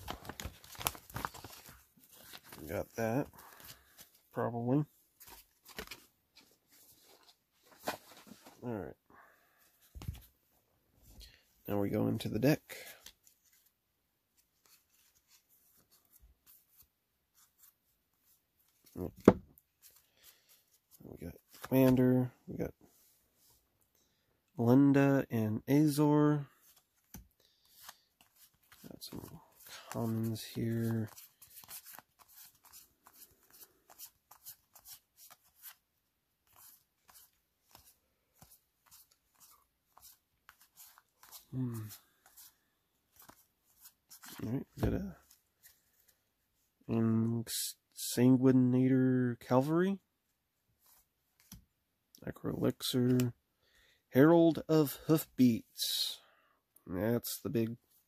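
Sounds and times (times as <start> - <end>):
cards and packaging rustling: 0.0 - 8.7, 25.9 - 46.2.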